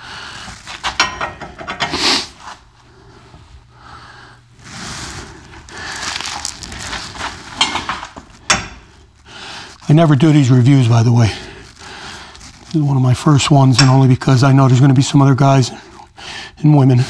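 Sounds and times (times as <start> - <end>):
steel tools clinking and rattling: 0.8 - 2.0, 7.5 - 8.9.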